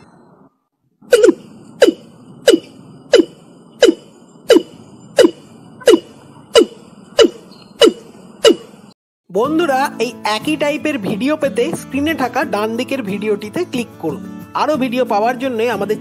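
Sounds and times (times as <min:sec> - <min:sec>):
bird calling sharp falling notes: 0:01.0 - 0:08.9.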